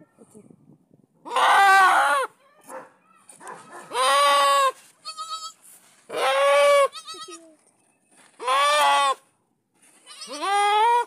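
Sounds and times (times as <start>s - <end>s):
goat bleating: 3.9s - 7.6s, 8.4s - 9.2s, 10.0s - 11.0s.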